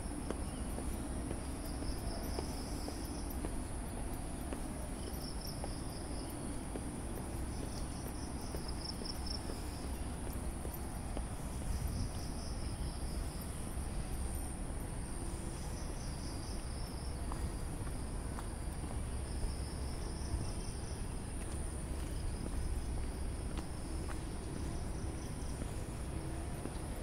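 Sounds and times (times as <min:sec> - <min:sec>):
crickets trilling: 0:00.0 - 0:27.0.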